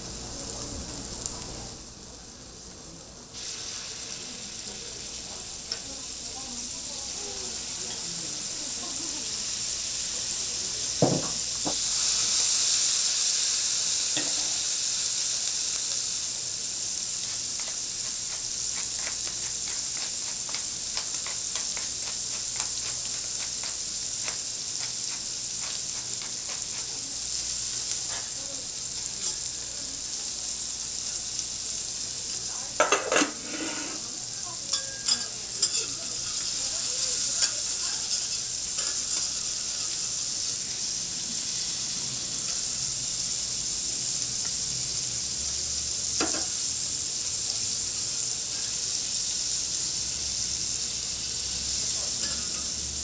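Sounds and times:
steak sizzling on griddle: 0.0s - 53.0s
metal utensils scraping griddle: 32.8s - 34.1s, 34.7s - 40.1s, 52.2s - 52.7s.

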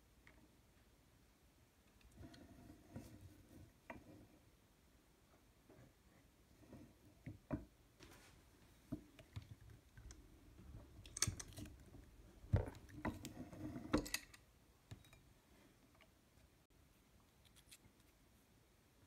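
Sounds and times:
metal clicks and knocks: 11.0s - 11.8s.

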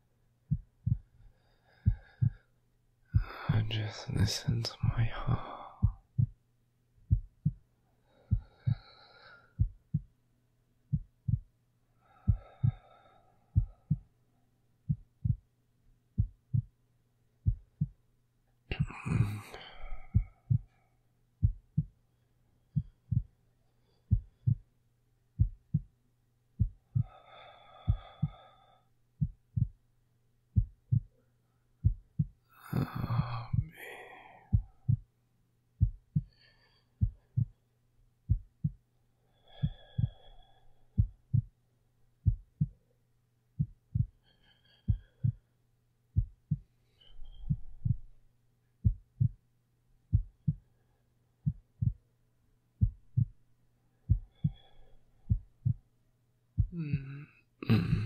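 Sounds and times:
slow quiet breathing: 0.0s - 6.4s, 7.1s - 10.1s, 10.9s - 15.5s, 18.7s - 24.8s, 26.6s - 29.8s, 30.5s - 35.1s, 35.8s - 43.0s, 43.6s - 49.4s, 50.1s - 52.2s, 52.8s - 56.0s
heartbeat: 0.4s - 2.5s, 3.1s - 6.4s, 7.0s - 8.9s, 9.5s - 10.2s, 10.9s - 11.6s, 12.2s - 14.2s, 14.9s - 15.5s, 16.1s - 16.8s, 17.4s - 18.0s, 18.7s - 20.8s, 21.4s - 22.0s, 22.7s - 23.4s, 24.0s - 24.7s, 25.3s - 26.0s, 26.6s - 27.2s, 27.8s - 28.6s, 29.2s - 29.8s, 30.5s - 31.2s, 31.8s - 33.8s, 34.4s - 35.1s, 35.8s - 37.6s, 38.2s - 38.8s, 39.6s - 41.6s, 42.2s - 42.8s, 43.6s - 44.2s, 44.8s - 45.5s, 46.1s - 48.2s, 48.8s - 49.4s, 50.1s - 50.8s, 51.4s - 52.1s, 52.8s - 53.4s, 54.0s - 55.9s, 56.6s - 58.0s.

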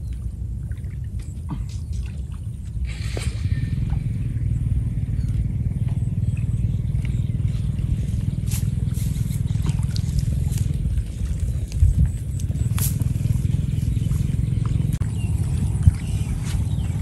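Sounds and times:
steady low rumble: 0.0s - 17.0s
net splashing in water: 8.5s - 13.0s.

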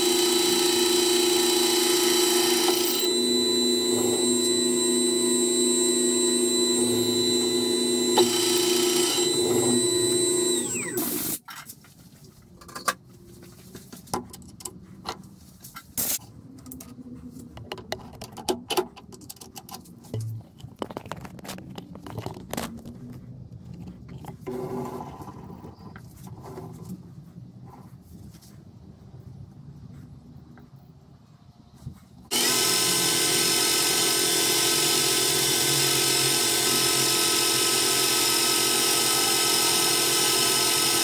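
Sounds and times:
metal lathe whining: 0.0s - 11.4s, 32.3s - 41.0s.

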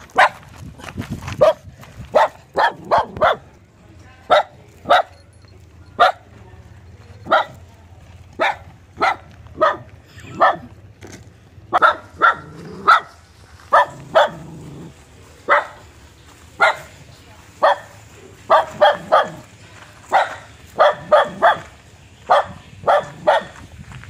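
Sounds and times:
dog barking: 0.2s - 0.4s, 1.4s - 3.5s, 4.3s - 5.2s, 6.0s - 6.3s, 7.2s - 7.7s, 8.4s - 10.8s, 11.7s - 14.5s, 15.5s - 15.9s, 16.6s - 17.0s, 17.6s - 19.5s, 20.1s - 23.6s.

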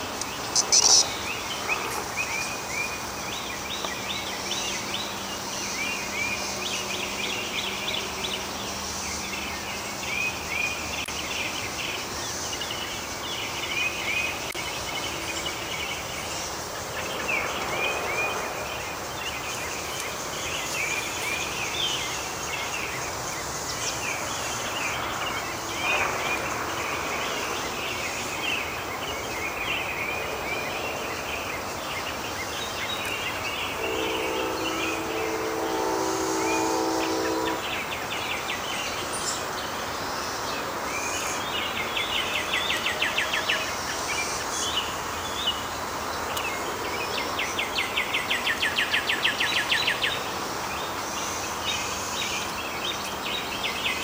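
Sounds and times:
songbirds chirping: 0.0s - 54.0s
high-pitched hiss: 31.6s - 41.4s.

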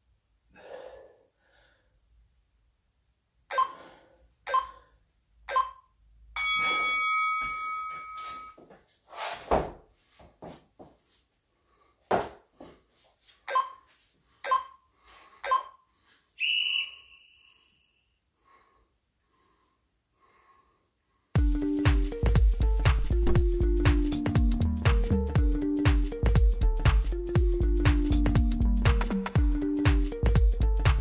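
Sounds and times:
person breathing: 0.5s - 2.1s, 3.6s - 5.0s, 11.5s - 12.9s, 14.3s - 16.4s, 18.4s - 21.4s
interval timer beeps: 3.5s - 3.8s, 4.5s - 4.8s, 5.5s - 7.0s, 13.5s - 13.8s, 14.4s - 14.8s, 15.4s - 15.8s.

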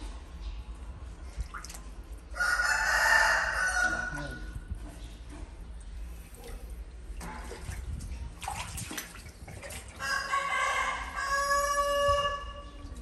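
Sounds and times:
faint water noises: 0.0s - 13.0s
rooster crowing: 2.4s - 4.2s, 10.0s - 12.7s.

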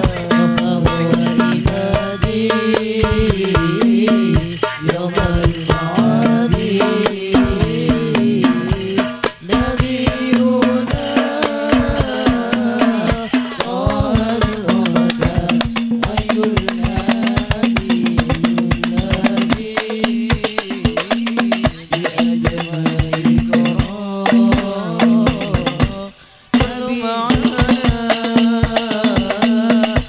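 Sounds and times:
frame drums beating: 0.0s - 30.0s
tambourine jingles: 1.2s - 30.0s.

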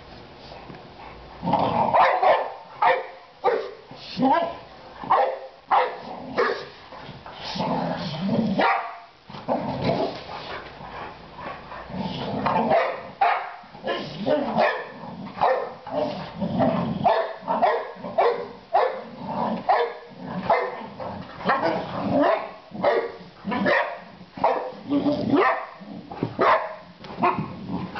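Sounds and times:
dogs growling low: 1.1s - 2.0s, 7.0s - 8.6s, 9.4s - 12.7s, 14.0s - 18.2s, 19.0s - 22.8s, 27.4s - 27.9s
dogs barking in play: 1.1s - 7.8s, 8.4s - 27.9s.

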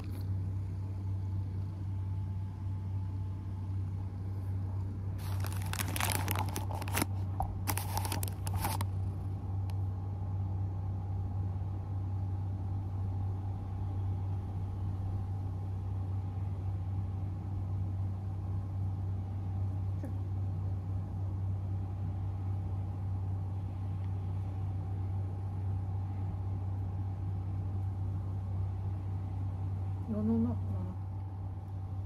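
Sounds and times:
steady low hum: 0.0s - 32.0s
fur rustling on microphone: 5.2s - 8.8s.

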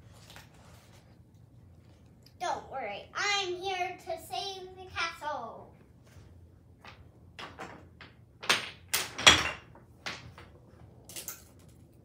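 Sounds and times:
toy blocks knocking on tiled floor: 6.8s - 11.5s.

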